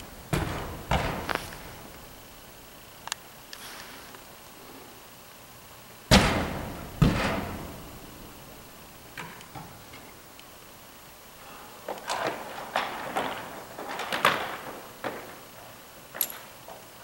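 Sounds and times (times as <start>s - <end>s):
metal gear banging on wall: 6.1s - 8.1s.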